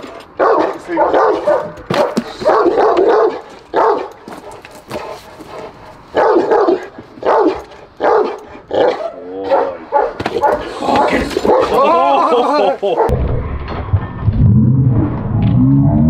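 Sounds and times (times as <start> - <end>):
dog barking: 0.4 - 10.8, 11.4 - 11.8, 12.8 - 13.1.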